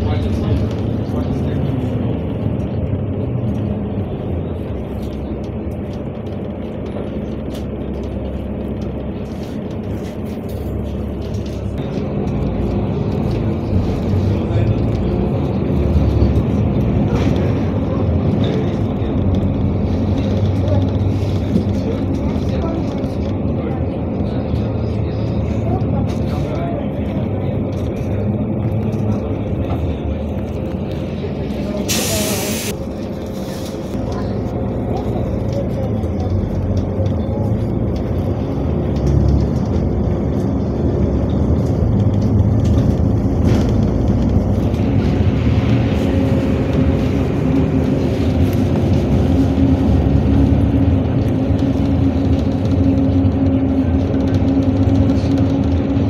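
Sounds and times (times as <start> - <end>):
bus engine drone: 0.0 - 56.0
road noise: 0.0 - 56.0
short air hiss: 31.9 - 32.7.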